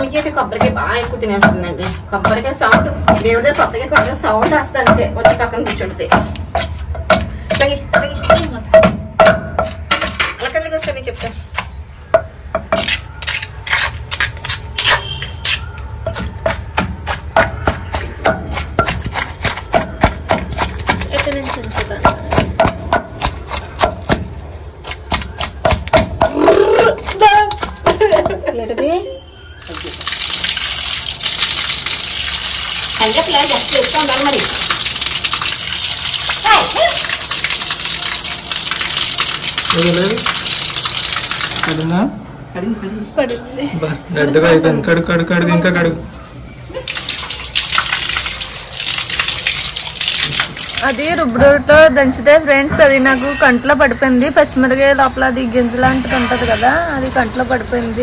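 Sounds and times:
stone pestle pounding in mortar: 0.0 - 28.4
water splashing: 29.6 - 42.0, 46.8 - 51.3.

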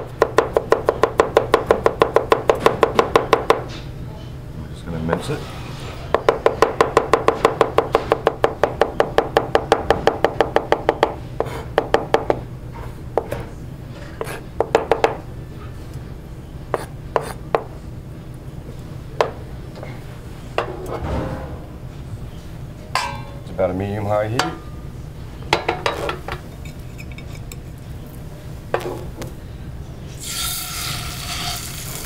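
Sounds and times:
knife chopping on cutting board: 16.8 - 17.7.

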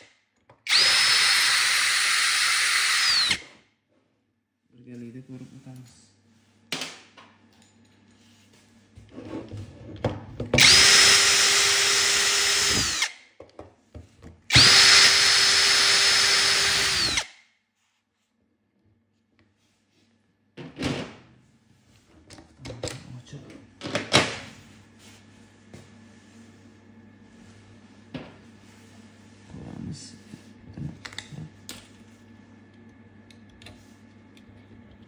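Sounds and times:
power drill whining: 0.7 - 3.6, 10.6 - 13.2, 14.5 - 17.4.

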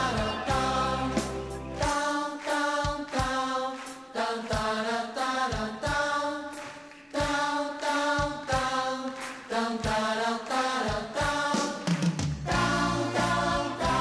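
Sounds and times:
bass line: 0.0 - 1.8, 12.5 - 14.0
voices chanting held notes: 12.5 - 14.0.

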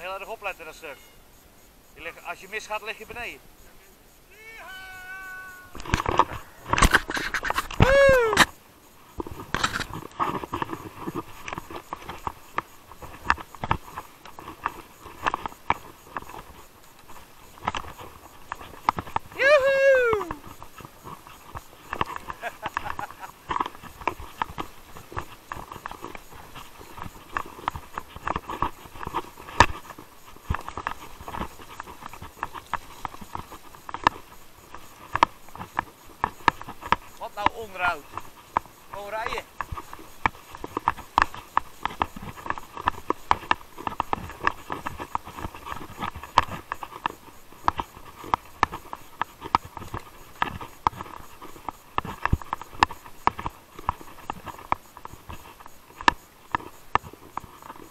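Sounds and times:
tyres hissing on gravel: 1.9 - 41.8
bike rattling on dirt trail: 4.4 - 57.9.

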